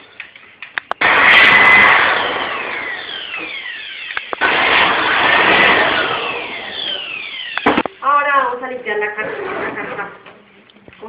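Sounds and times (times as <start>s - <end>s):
electric air blower running: 1.0s - 8.1s.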